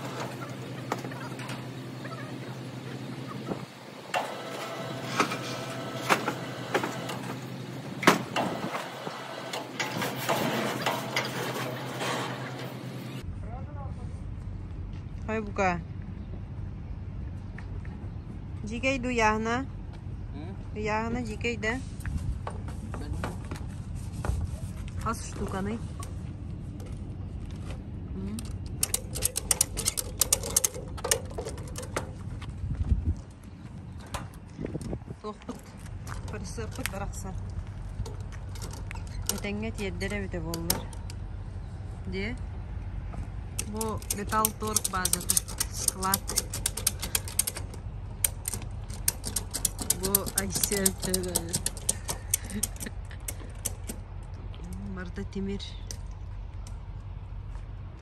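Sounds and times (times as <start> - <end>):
metal sheets knocking and clanking: 9.6 - 12.8, 28.8 - 32.2, 43.6 - 54.0
light mechanical clicks: 43.6 - 54.8.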